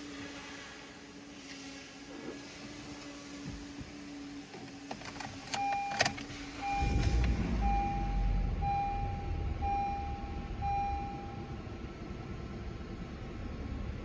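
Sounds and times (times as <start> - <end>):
car engine starting and idling: 0.0 - 14.0
warning chime beeping: 6.6 - 11.6.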